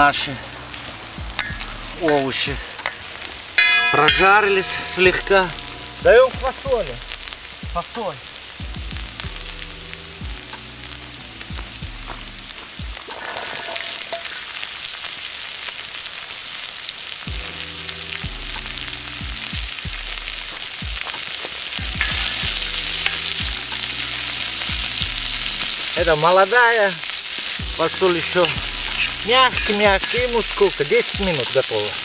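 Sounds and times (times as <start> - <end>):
oil sizzling on a griddle: 0.0 - 32.0
metal spatula scraping: 13.1 - 14.4, 27.8 - 31.6.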